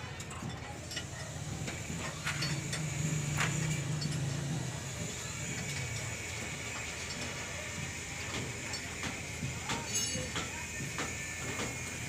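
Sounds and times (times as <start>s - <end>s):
low engine-like hum: 0.0s - 12.0s
light metallic clinks of bearing: 0.1s - 4.7s, 8.2s - 12.0s.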